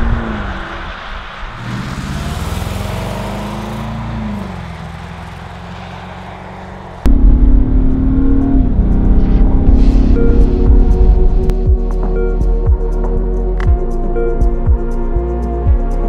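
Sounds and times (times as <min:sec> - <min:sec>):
car engine accelerating: 0:00.0 - 0:11.9.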